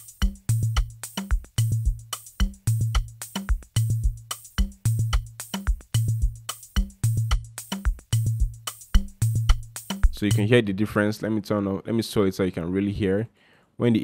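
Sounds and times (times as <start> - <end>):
percussion and hi-hat hits: 0.0 - 10.5
deep kick drum: 0.2 - 10.4.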